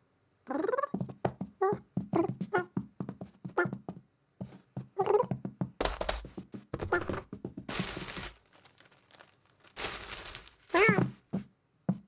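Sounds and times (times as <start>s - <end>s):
cartoon cat meowing: 10.7s - 11.1s.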